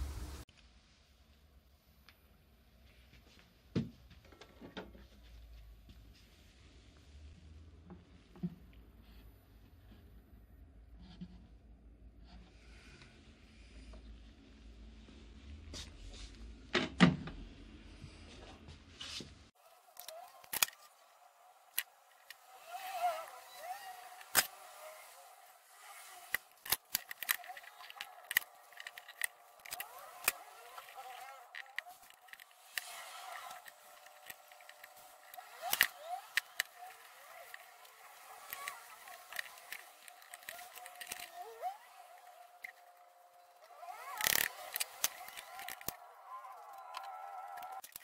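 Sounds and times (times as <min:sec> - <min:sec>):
bar clamps sliding and clicking: 0:21.7 - 0:42.9, 0:43.8 - 0:46.0.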